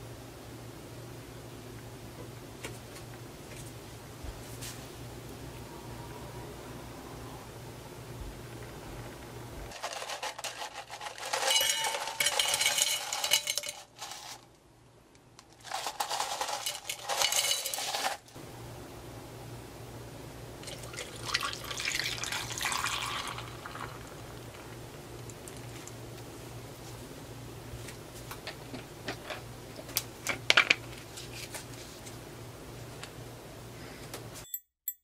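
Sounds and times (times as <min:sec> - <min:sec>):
ice cubes clinking into glass: 0:09.8 - 0:14.2, 0:15.7 - 0:18.2, 0:20.7 - 0:24.2
drink pouring over ice: 0:20.6 - 0:24.8.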